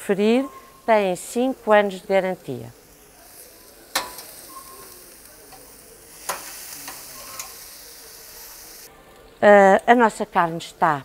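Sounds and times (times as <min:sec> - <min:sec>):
meat sizzling on a grill: 0:00.2 - 0:09.3
grill fork clicking on grate: 0:03.9 - 0:04.9, 0:05.5 - 0:07.6.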